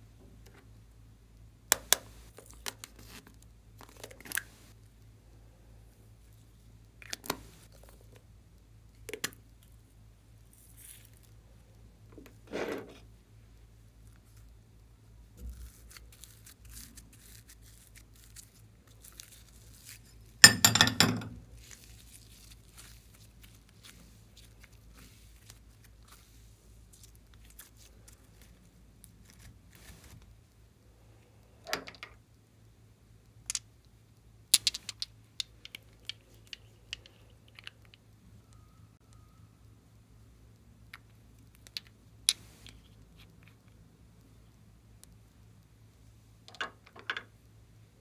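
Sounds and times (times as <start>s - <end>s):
crackles of foam beads: 6.0s - 12.1s, 13.5s - 20.5s, 21.5s - 31.6s.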